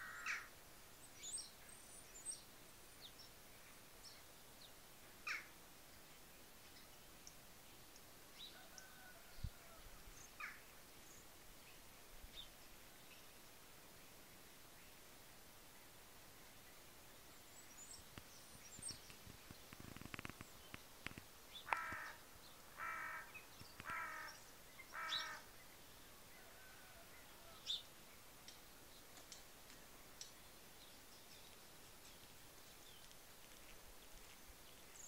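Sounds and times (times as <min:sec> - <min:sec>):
crow cawing: 0:00.0 - 0:00.5, 0:21.6 - 0:25.5
small birds chirping: 0:16.4 - 0:35.0
brief rustle: 0:18.1 - 0:22.1.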